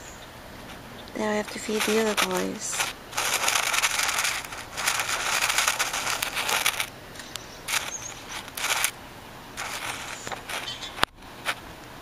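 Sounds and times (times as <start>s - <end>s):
footsteps crunching on dry leaves: 1.2s - 6.9s, 7.6s - 8.9s, 9.6s - 11.0s.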